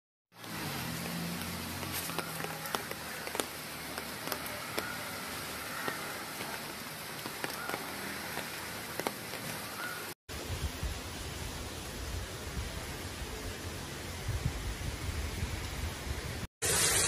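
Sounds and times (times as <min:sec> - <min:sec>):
rain falling on a wet street: 0:00.3 - 0:10.1.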